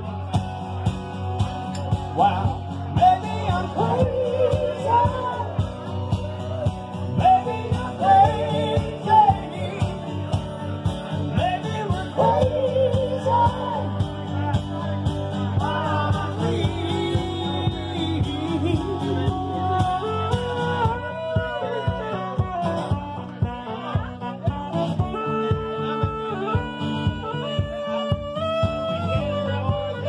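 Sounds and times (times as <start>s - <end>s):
strummed acoustic guitar: 0.0s - 30.0s
woman singing: 3.0s - 5.6s, 11.4s - 14.0s
saxophone melody: 16.4s - 30.0s.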